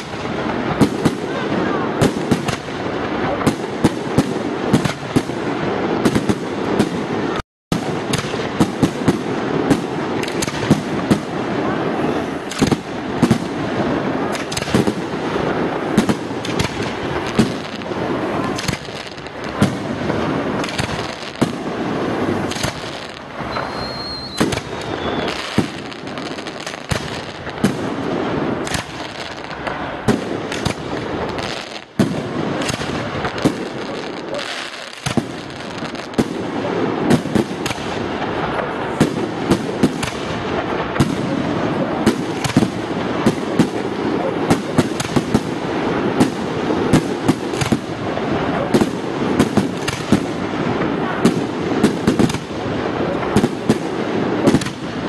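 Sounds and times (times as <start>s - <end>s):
firework crackling: 0.0s - 55.0s
firework shell bursts and bangs: 7.7s - 11.8s, 12.4s - 52.6s
high whistle: 23.5s - 25.5s.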